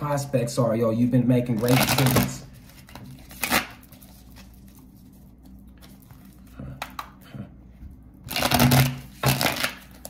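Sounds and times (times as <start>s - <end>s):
cards being shuffled: 1.6s - 7.2s, 8.3s - 10.0s.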